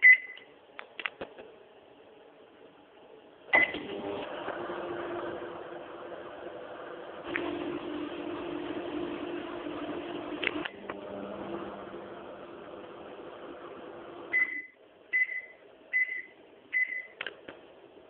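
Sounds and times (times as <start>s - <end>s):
microwave beeps: 0.0s - 0.5s, 3.6s - 3.8s, 14.3s - 17.2s
microwave oven humming: 3.6s - 14.8s.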